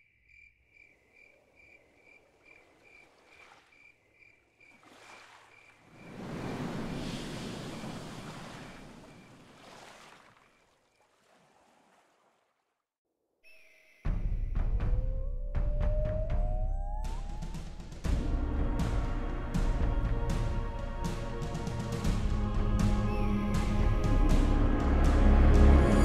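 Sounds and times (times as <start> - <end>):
crickets chirping: 0.0 - 9.8
rush of sea water: 2.2 - 3.9, 4.6 - 12.6.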